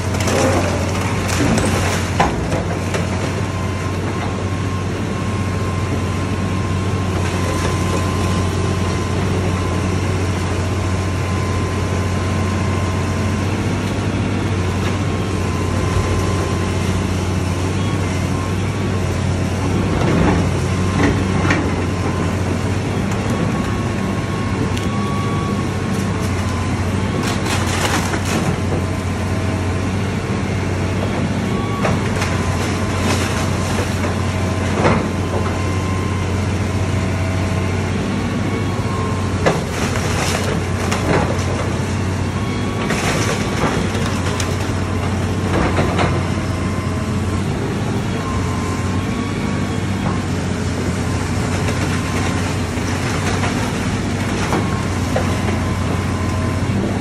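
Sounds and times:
demolition debris cracking: 0:00.0 - 0:04.3, 0:24.8 - 0:29.1, 0:31.6 - 0:35.5, 0:39.2 - 0:46.2, 0:51.2 - 0:56.2
excavator diesel engine running: 0:00.0 - 0:57.0.

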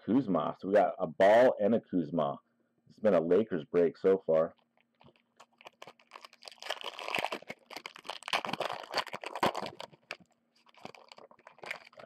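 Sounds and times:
foil wrapper crinkling and tearing: 0:05.0 - 0:12.0.

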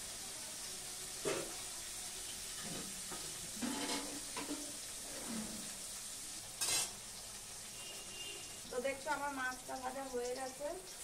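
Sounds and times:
fish sizzling in oil: 0:00.0 - 0:11.0.

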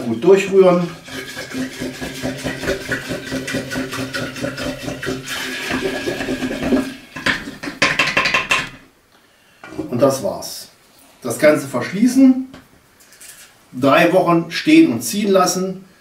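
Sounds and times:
liquid sloshing: 0:00.8 - 0:08.3
spoon knocking against pot: 0:01.4 - 0:08.8.

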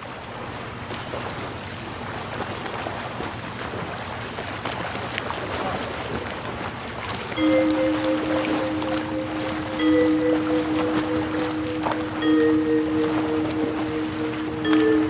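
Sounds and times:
wind: 0:00.0 - 0:15.0
surf: 0:02.6 - 0:15.0
held musical chord: 0:07.4 - 0:15.0.

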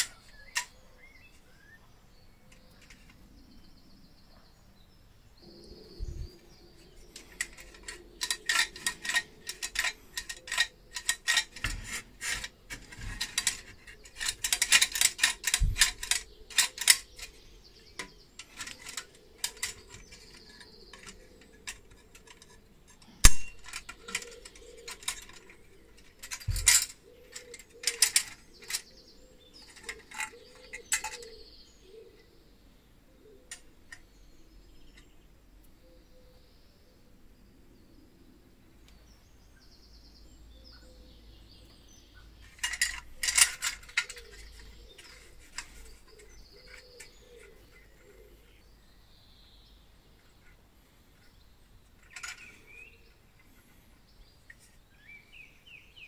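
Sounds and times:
toy cash register clicking and rattling: 0:00.0 - 0:00.7, 0:07.1 - 0:29.0, 0:29.6 - 0:31.4, 0:42.4 - 0:48.2, 0:52.0 - 0:52.7.

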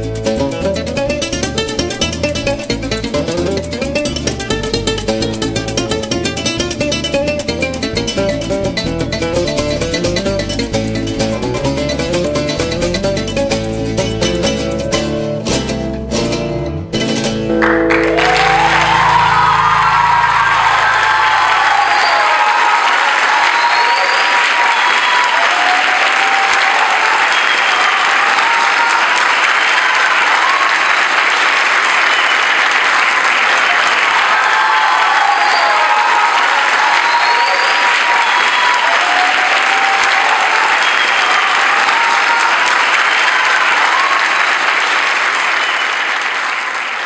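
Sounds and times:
audience applauding: 0:17.5 - 0:47.0.

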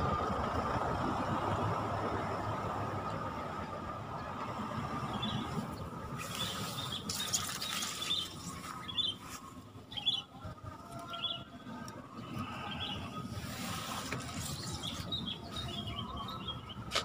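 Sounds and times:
small bird chirping: 0:06.2 - 0:09.3.

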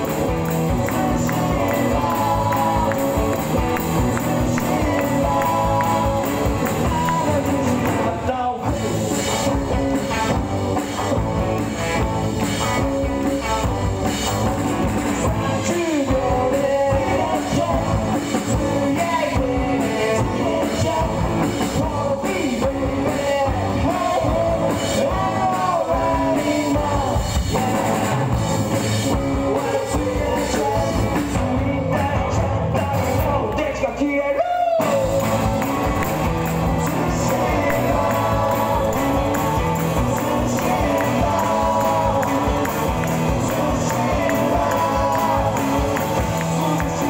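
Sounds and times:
person singing: 0:00.0 - 0:11.7, 0:14.9 - 0:47.0
rock band playing live: 0:00.0 - 0:47.0.

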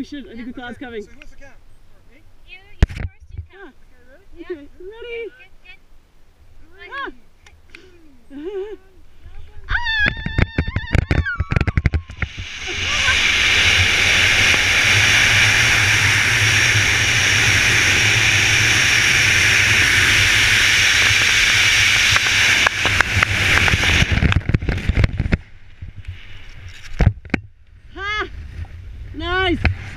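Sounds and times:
freefall wind rush: 0:08.4 - 0:29.9
person whooping: 0:09.7 - 0:13.4.

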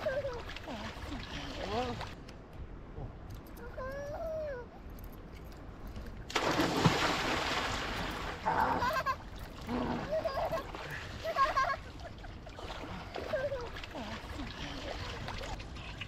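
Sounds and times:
water splashing loudly: 0:06.3 - 0:08.6.

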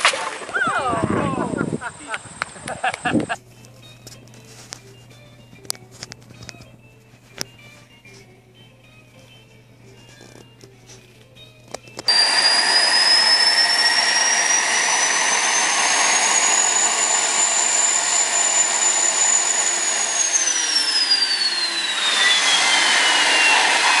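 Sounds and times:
high turbine whine: 0:00.7 - 0:04.1, 0:11.7 - 0:24.0
jet engine roar: 0:12.1 - 0:24.0.

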